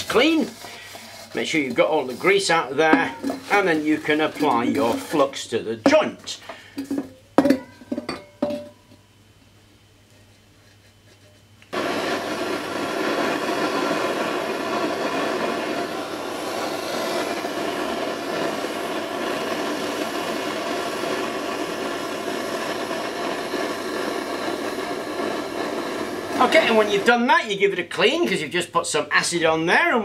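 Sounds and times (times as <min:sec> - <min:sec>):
blowtorch flame hissing: 0:00.0 - 0:07.2, 0:11.7 - 0:28.3.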